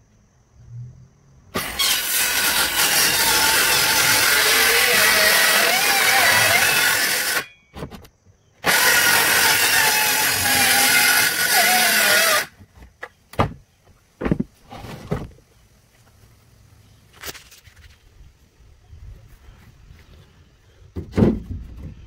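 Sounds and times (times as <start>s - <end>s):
electric sander on wood: 1.6s - 7.4s, 8.7s - 12.5s.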